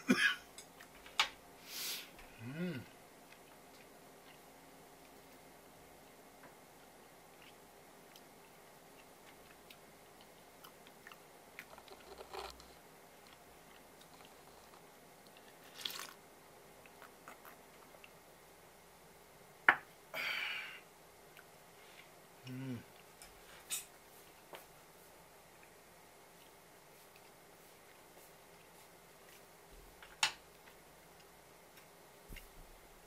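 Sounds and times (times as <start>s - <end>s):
breathy exhale: 20.1s - 20.8s.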